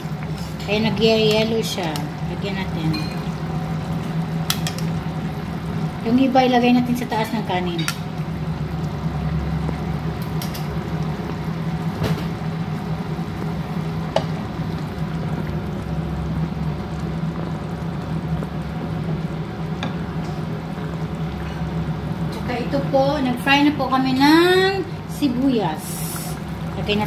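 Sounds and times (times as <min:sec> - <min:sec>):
curry simmering and bubbling: 0:00.0 - 0:27.0
steady low hum: 0:00.0 - 0:27.0.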